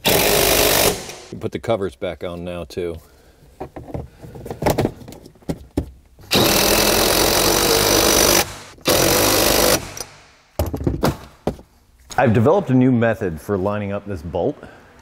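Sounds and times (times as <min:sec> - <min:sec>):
power tool driving fastener: 0:00.0 - 0:01.3, 0:06.3 - 0:10.3.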